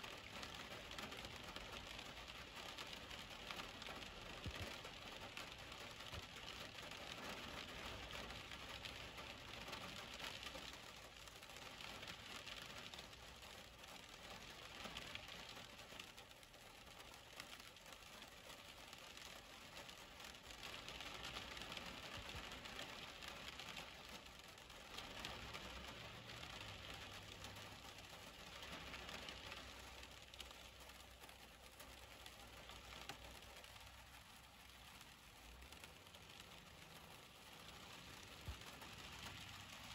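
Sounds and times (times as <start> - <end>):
faint steady rain: 0.0 - 39.9
tyres hissing on wet road: 32.0 - 39.9.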